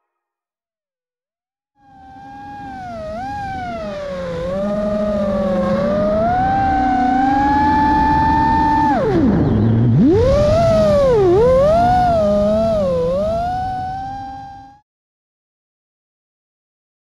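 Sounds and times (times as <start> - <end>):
quadcopter motors whining: 1.8 - 14.8.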